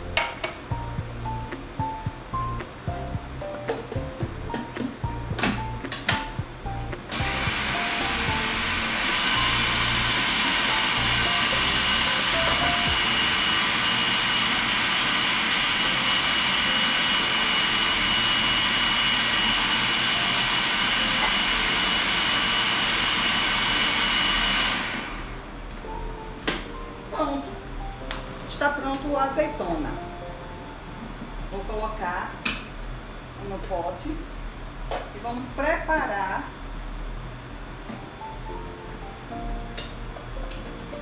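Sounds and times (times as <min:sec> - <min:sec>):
food processor whining: 0:07.1 - 0:25.5.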